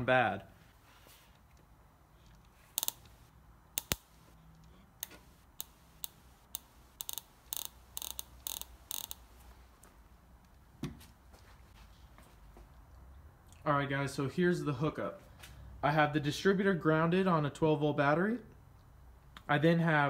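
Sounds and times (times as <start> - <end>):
clicks of small metal parts: 2.3 - 3.2, 3.8 - 9.2.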